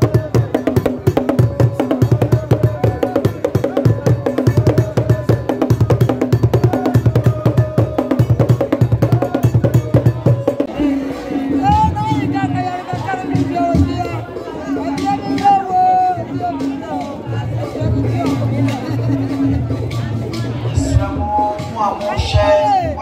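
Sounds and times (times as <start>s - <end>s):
drums beaten with sticks: 0.0s - 18.6s.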